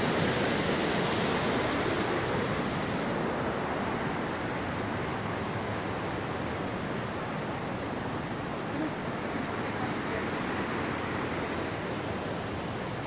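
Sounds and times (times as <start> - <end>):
rushing water: 0.0 - 13.0.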